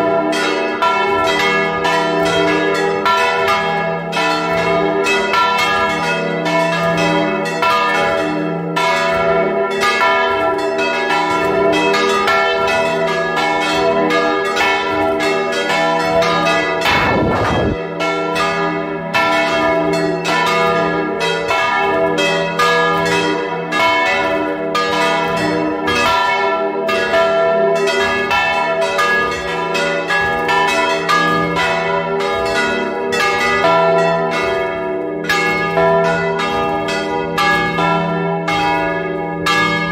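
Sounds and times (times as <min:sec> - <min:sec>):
church bells ringing: 0:00.0 - 0:39.9
short noisy rush: 0:16.9 - 0:17.8.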